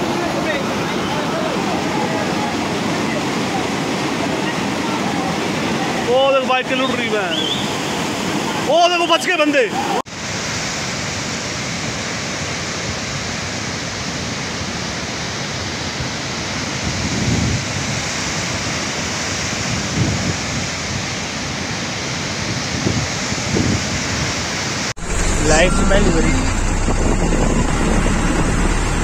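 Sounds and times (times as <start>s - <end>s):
flood water roaring: 0.0s - 29.0s.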